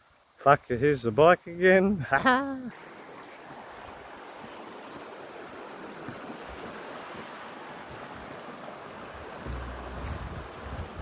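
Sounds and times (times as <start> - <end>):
water rushing over rocks: 2.6 - 11.0.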